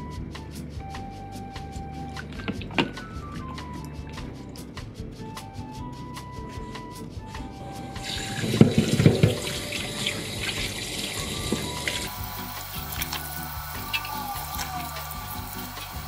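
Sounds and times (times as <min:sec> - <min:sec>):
light background music: 0:00.0 - 0:16.0
water splashing and sloshing: 0:08.0 - 0:13.3.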